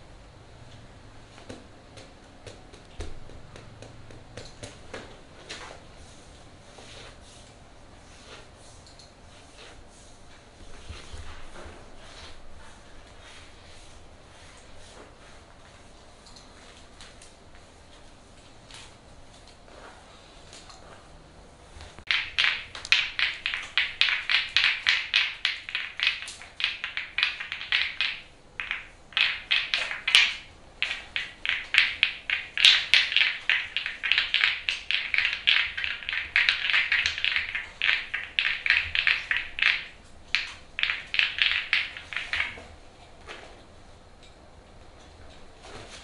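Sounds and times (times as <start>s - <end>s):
hands rubbing skin: 22.1s - 42.6s.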